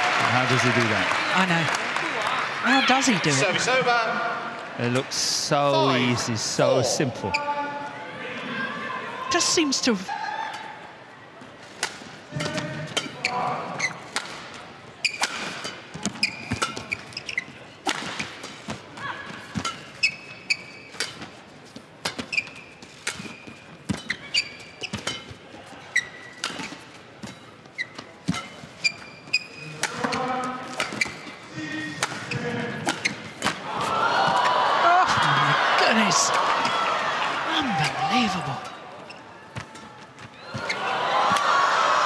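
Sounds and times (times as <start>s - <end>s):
racket hitting shuttlecock: 11.8s - 17.2s, 17.8s - 18.8s, 22.0s - 25.4s, 29.6s - 31.3s, 31.9s - 34.4s
shoes squeaking on court: 12.4s - 33.6s, 37.6s - 40.9s.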